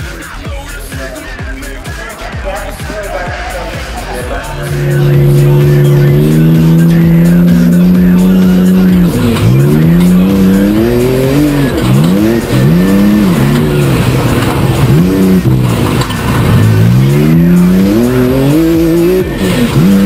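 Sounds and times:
race car engine revving: 2.6 - 20.0.

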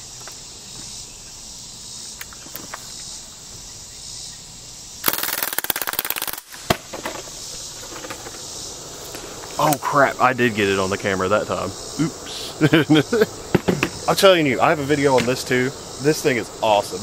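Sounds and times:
insects chirping: 0.0 - 17.0
bb gun firing rapid burst: 5.0 - 6.8
sharp crack: 5.0 - 7.2, 13.4 - 15.7.

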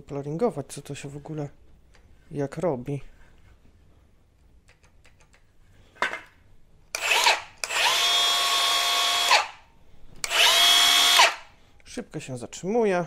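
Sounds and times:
circular saw whining: 10.2 - 11.5.

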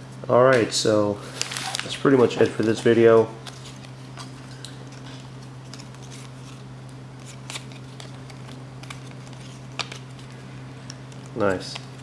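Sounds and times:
steady low hum: 0.0 - 12.0
cards rustling and clicking: 1.3 - 12.0.

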